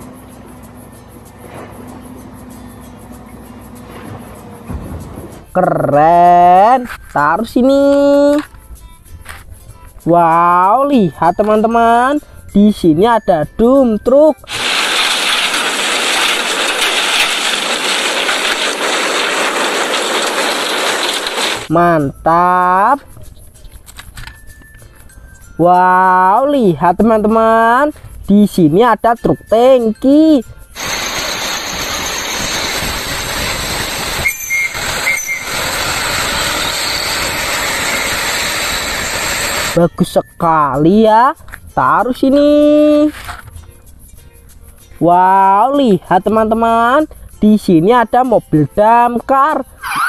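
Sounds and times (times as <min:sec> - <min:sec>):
traffic roar: 0:00.0 - 0:05.6, 0:14.5 - 0:21.7
truck engine rushing: 0:00.0 - 0:05.8, 0:14.5 - 0:21.7, 0:30.8 - 0:39.8
rock and soil sliding: 0:14.5 - 0:21.7, 0:30.8 - 0:39.8.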